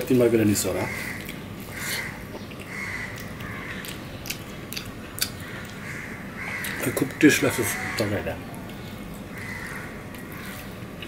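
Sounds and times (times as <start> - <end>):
close-up chewing: 1.1 - 6.8.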